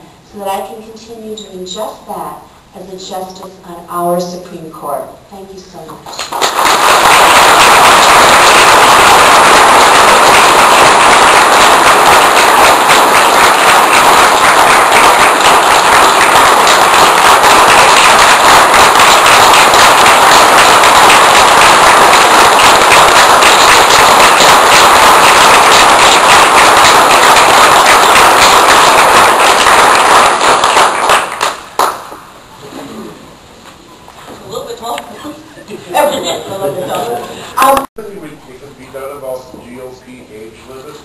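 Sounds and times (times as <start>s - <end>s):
audience applauding: 6.1s - 32.3s.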